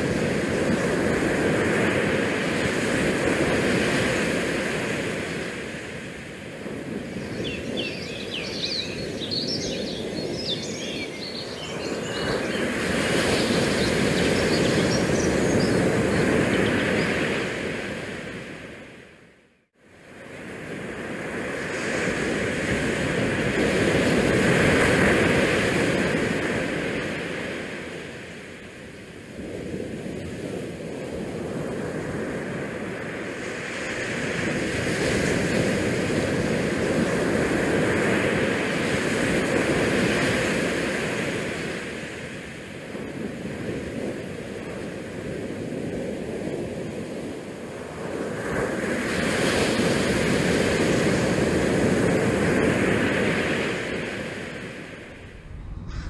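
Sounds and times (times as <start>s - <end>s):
wind buffeting microphone: 52.0s - 56.0s.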